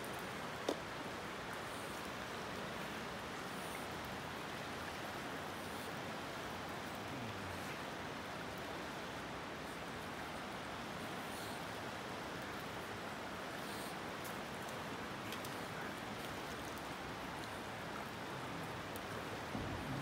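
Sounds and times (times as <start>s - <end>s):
river flowing: 0.0s - 20.0s
faint ticks: 13.5s - 20.0s.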